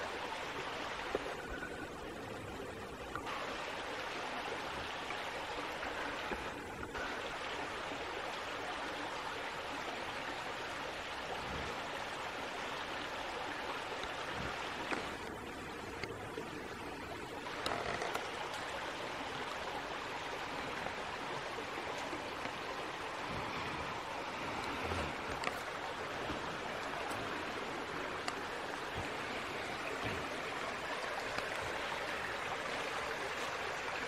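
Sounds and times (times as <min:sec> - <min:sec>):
creek water flowing: 0:00.0 - 0:34.0
faint clicks: 0:13.9 - 0:16.5, 0:24.6 - 0:31.9.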